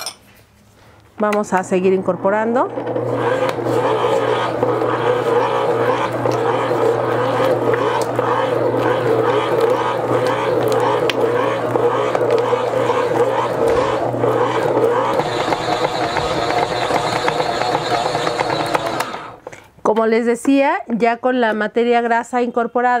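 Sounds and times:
stand mixer motor drone: 0:02.0 - 0:19.5.

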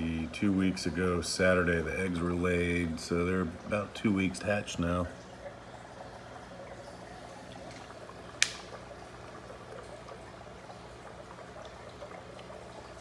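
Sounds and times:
aquarium filter bubbling: 0:00.0 - 0:13.0
sharp click: 0:08.4 - 0:08.7.

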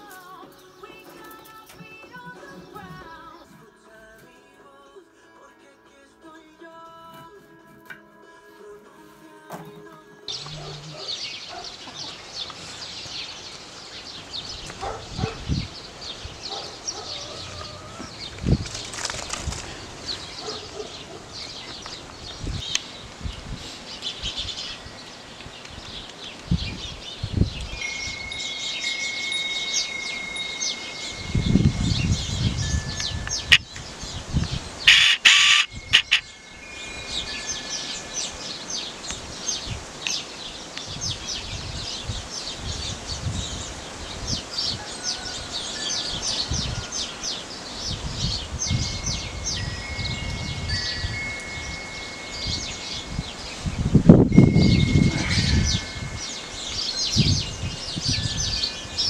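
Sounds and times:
birds chirping: 0:00.0 - 0:07.1, 0:09.6 - 0:59.0
wind chime tones: 0:24.5 - 0:25.4, 0:27.6 - 0:39.8, 0:45.0 - 0:59.0.

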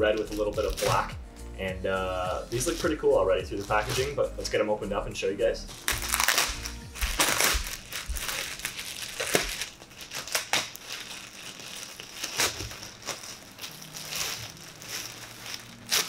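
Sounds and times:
plastic bag crinkling: 0:02.5 - 0:04.2, 0:05.8 - 0:16.0.

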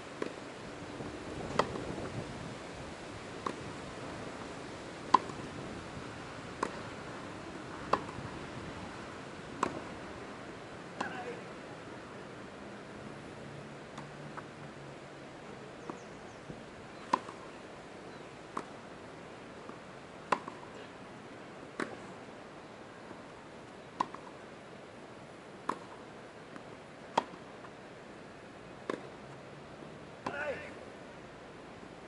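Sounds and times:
steady background hiss: 0:00.0 - 0:32.0
tennis ball bouncing on court: 0:01.5 - 0:01.9, 0:03.4 - 0:03.6, 0:05.1 - 0:05.4, 0:06.6 - 0:06.9, 0:07.8 - 0:08.2, 0:09.6 - 0:09.9, 0:11.0 - 0:11.4, 0:17.0 - 0:17.5, 0:18.5 - 0:18.8, 0:19.6 - 0:20.7, 0:21.8 - 0:22.0, 0:24.0 - 0:24.4, 0:25.6 - 0:26.0, 0:27.1 - 0:27.4, 0:28.8 - 0:29.1, 0:30.2 - 0:30.6.

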